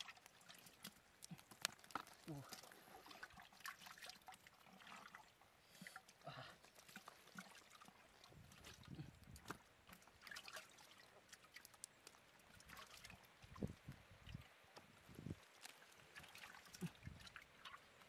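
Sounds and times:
small clicks and taps: 0.2s - 2.2s.

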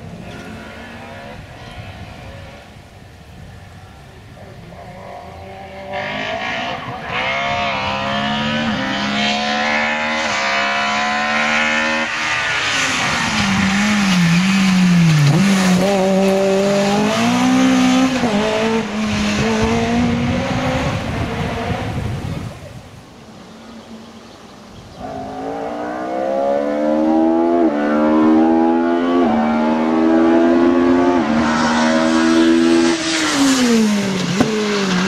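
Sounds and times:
rally car engine revving: 4.8s - 22.4s, 25.0s - 35.0s.

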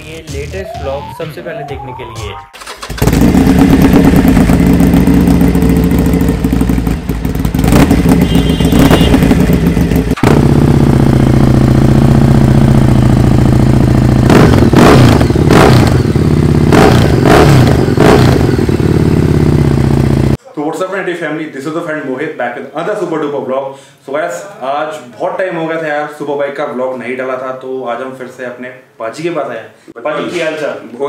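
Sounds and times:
motorcycle throttle blips: 2.6s - 16.1s
motorcycle engines running: 2.8s - 20.4s.

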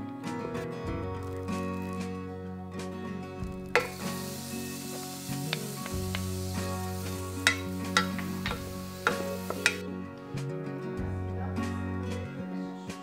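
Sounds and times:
soft guitar music: 0.0s - 13.0s
onion sizzling in butter: 3.7s - 9.8s
wooden spoon knocking pan: 3.8s - 4.0s, 5.5s - 6.4s, 7.4s - 9.8s.

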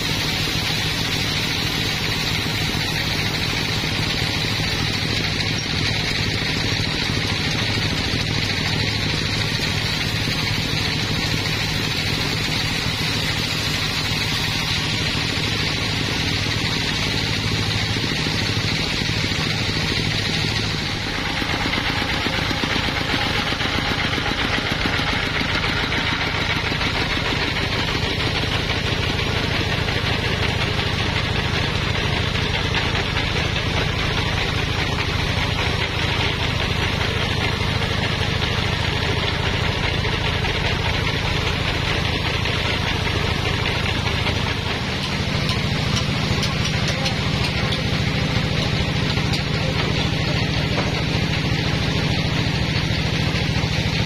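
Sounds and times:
band saw machine drone: 0.0s - 54.0s
saw blade cutting hiss: 9.0s - 25.0s.

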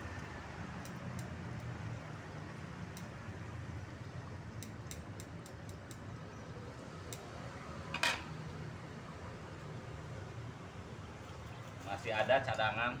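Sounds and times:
light clicks and ticks: 0.1s - 1.8s, 2.9s - 3.2s, 4.6s - 6.1s.

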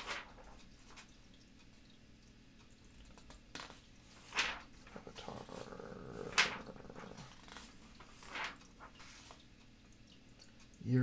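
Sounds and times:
catalog pages turning: 3.2s - 5.7s, 6.3s - 9.4s.

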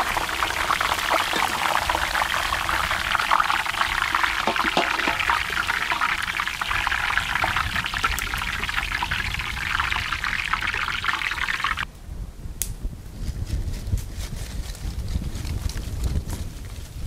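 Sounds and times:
potatoes deep-frying crackling sizzle: 0.0s - 11.8s.

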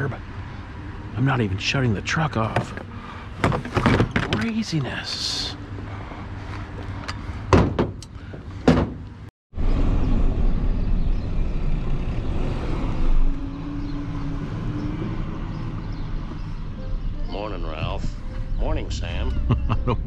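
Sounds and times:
sharp knocks and thumps: 2.5s - 4.6s, 7.5s - 9.0s.

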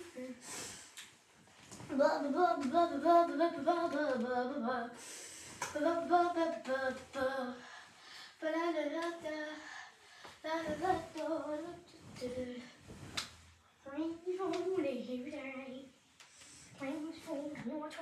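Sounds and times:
girl singing: 0.0s - 0.7s, 1.8s - 12.8s, 13.9s - 15.9s
duvet rustling: 8.6s - 13.7s.

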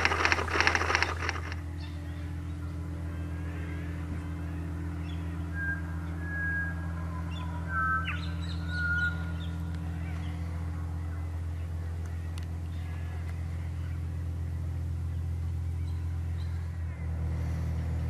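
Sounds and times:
low motor hum: 0.0s - 18.0s
birds whistling calls: 5.0s - 10.5s.

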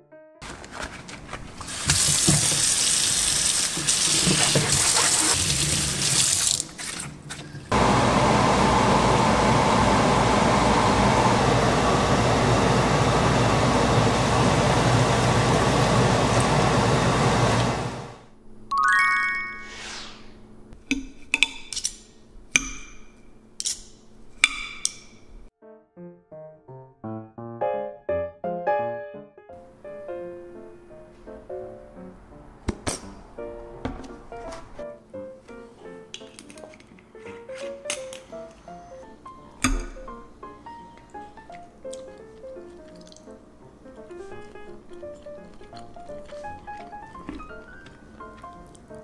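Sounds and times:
tap water running into sink: 1.6s - 7.0s.

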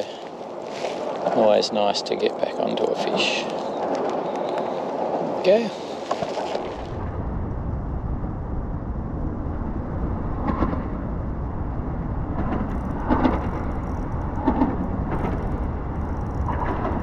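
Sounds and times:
traffic rumbling over bridge: 4.8s - 17.0s.

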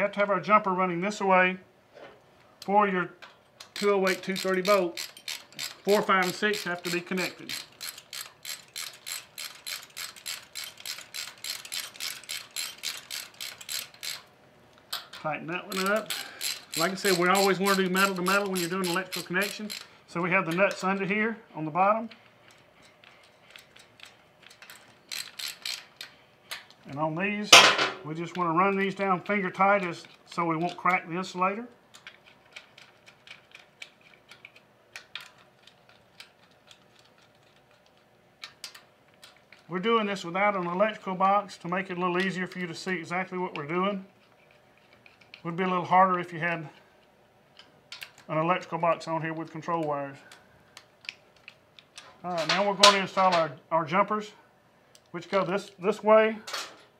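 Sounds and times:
small metallic clicks: 2.6s - 21.1s, 22.1s - 26.9s, 31.7s - 39.7s, 43.5s - 45.5s, 46.8s - 48.4s, 49.2s - 53.5s
ratchet wrench clicking: 3.2s - 14.3s, 14.9s - 19.9s, 23.5s - 26.8s.

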